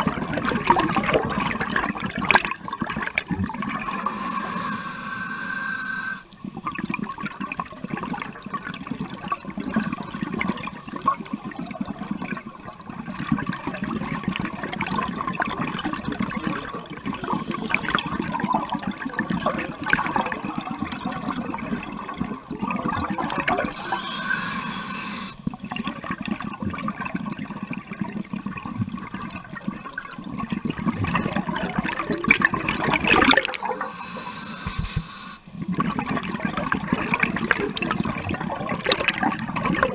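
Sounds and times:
underwater scuba breathing: 0:03.6 - 0:07.0, 0:09.7 - 0:11.9, 0:16.9 - 0:19.0, 0:23.7 - 0:25.7, 0:32.6 - 0:35.8.

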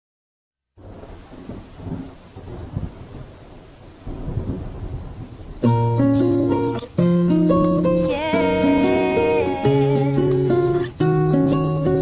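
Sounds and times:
rain: 0:00.7 - 0:12.0
rolling thunder: 0:00.8 - 0:06.7
plucked guitar: 0:05.6 - 0:12.0.

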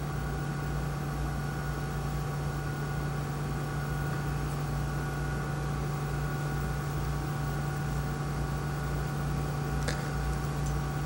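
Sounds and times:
electrical hum with tones: 0:00.0 - 0:11.0.

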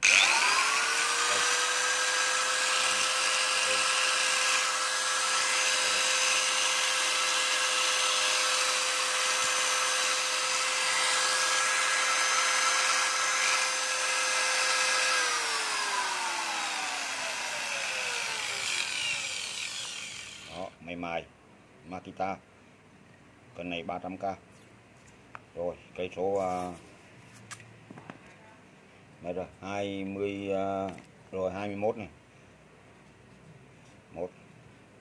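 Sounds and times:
electric drill whining: 0:00.0 - 0:20.7.

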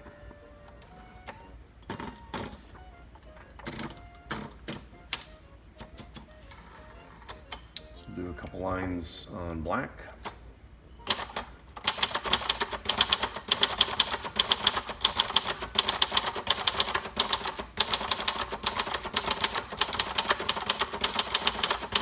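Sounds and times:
typewriter keystrokes: 0:11.0 - 0:22.0.

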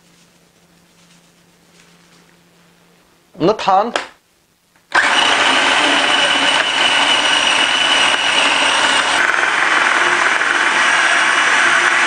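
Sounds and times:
food processor chopping: 0:04.9 - 0:12.0
food processor motor whine: 0:04.9 - 0:12.0.

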